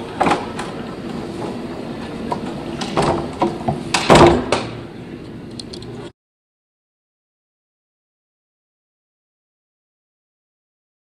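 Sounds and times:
steady hum: 0.0s - 6.1s
door banging: 2.8s - 4.8s.

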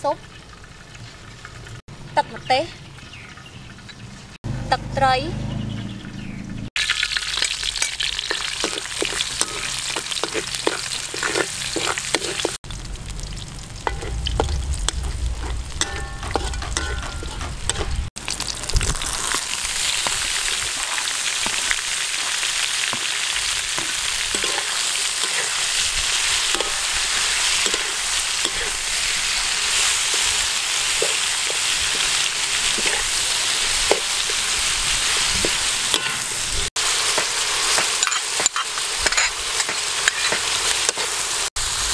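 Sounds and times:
food sizzling in hot oil: 6.8s - 41.9s
utensil scraping a wok: 7.1s - 12.6s, 13.7s - 18.1s, 18.8s - 41.5s
low rumble: 12.6s - 18.1s.

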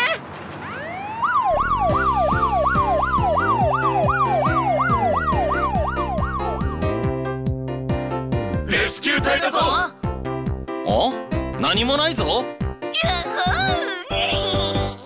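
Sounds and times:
police siren yelping: 0.0s - 6.8s
upbeat children's music: 8.5s - 15.0s.

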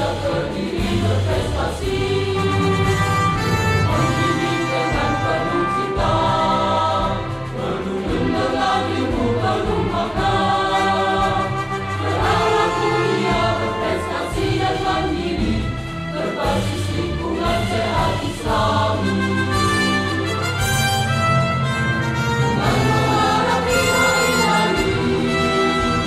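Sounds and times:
choir singing a march: 0.0s - 26.0s
instrumental backing: 0.0s - 26.0s.

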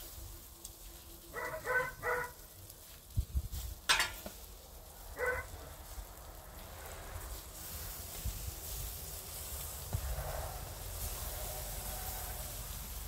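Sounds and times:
meat sizzling on grill: 0.0s - 13.0s
dog barking: 1.3s - 2.4s, 5.2s - 5.5s.

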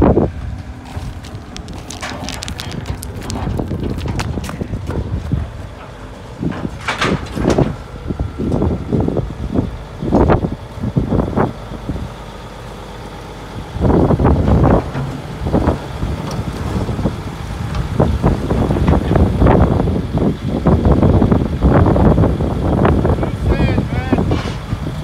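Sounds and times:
excavator diesel engines running: 0.0s - 25.0s
concrete rubble crunching: 0.1s - 9.2s, 13.8s - 20.3s.

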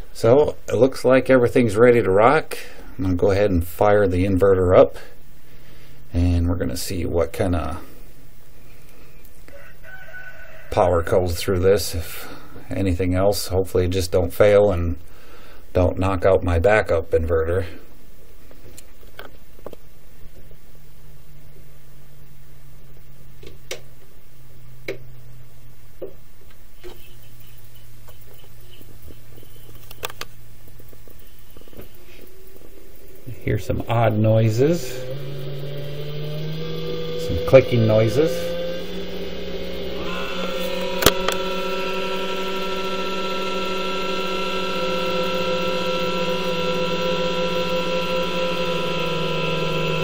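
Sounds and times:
power inverter humming: 0.0s - 9.8s, 10.7s - 20.5s, 22.8s - 50.0s
faint ticks: 26.5s - 33.3s
sharp clicks: 26.5s - 33.3s, 39.9s - 41.6s.

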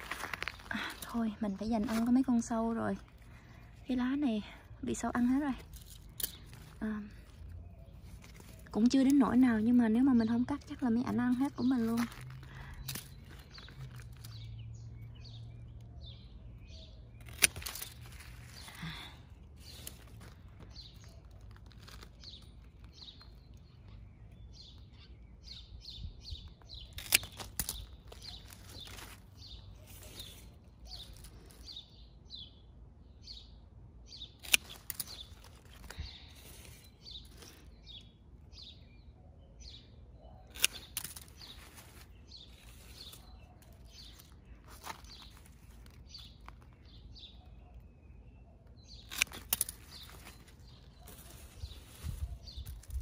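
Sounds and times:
small birds chirping: 0.0s - 53.0s
pruning shears snipping stems: 0.2s - 3.1s, 4.9s - 14.5s, 17.2s - 23.2s, 26.8s - 31.6s, 34.4s - 37.7s, 40.4s - 46.6s, 49.0s - 53.0s.

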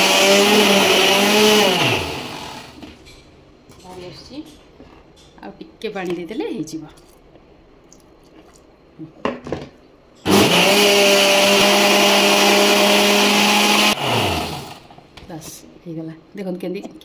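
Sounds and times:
mixer grinder running: 0.0s - 2.9s, 10.2s - 14.9s.

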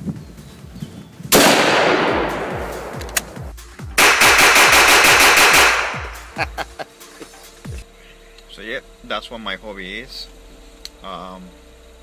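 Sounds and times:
background music with low beat: 0.0s - 8.0s
rifle shot with echo: 1.3s - 3.4s, 4.0s - 6.2s
handgun rapid fire: 1.4s - 3.4s, 4.0s - 6.3s.

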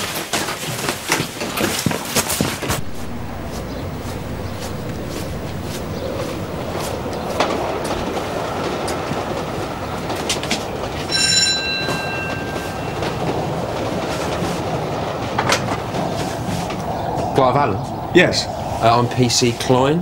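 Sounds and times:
footsteps: 1.6s - 14.6s
street rumble: 2.7s - 19.2s
doorbell chime: 11.1s - 13.5s.

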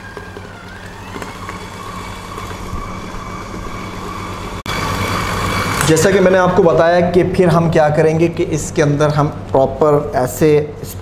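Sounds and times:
stand mixer motor hum: 0.0s - 6.6s.

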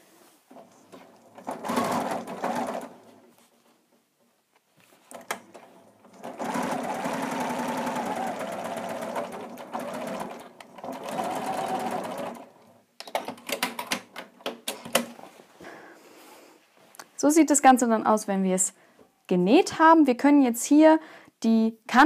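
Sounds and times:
sewing machine stitching: 0.5s - 3.2s, 5.1s - 12.7s.

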